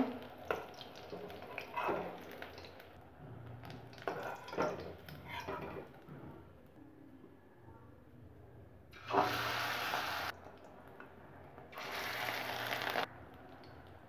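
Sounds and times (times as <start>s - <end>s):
faint oil sizzle: 9.0s - 10.3s, 11.8s - 13.1s.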